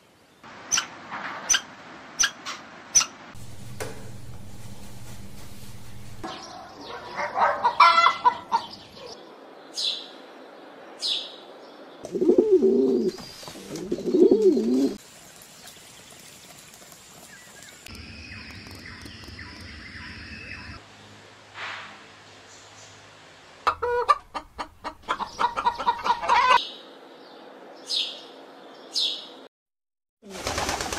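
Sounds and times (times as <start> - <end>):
pigeon cooing: 12.0 - 15.0.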